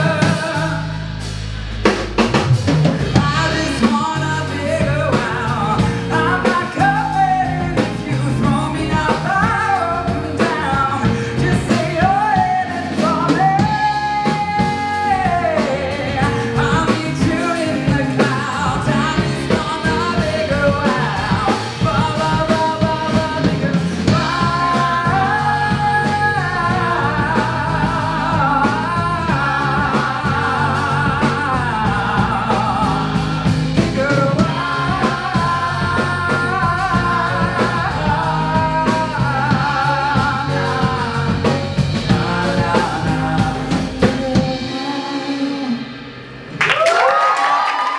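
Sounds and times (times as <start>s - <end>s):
lead singer: 0.0s - 47.9s
pop-rock band playing: 0.0s - 47.9s
backing vocalists singing: 3.1s - 45.9s.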